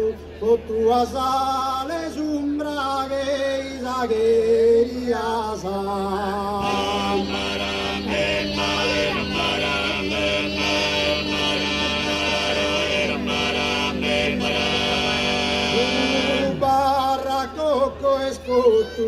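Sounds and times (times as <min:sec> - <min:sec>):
male voices singing in harmony: 0:00.0 - 0:19.0
low throaty vocal drone: 0:05.7 - 0:18.8.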